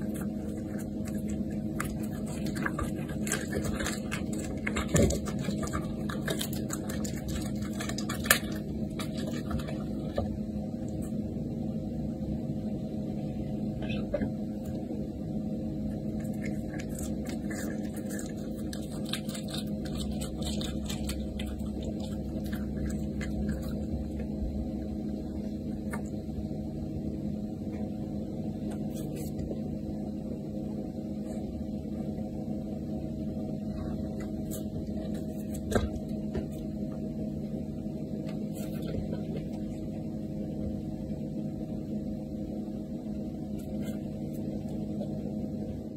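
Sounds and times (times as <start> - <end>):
animal chewing raw meat: 0.0 - 11.1, 15.9 - 26.2
steady low hum: 0.0 - 45.9.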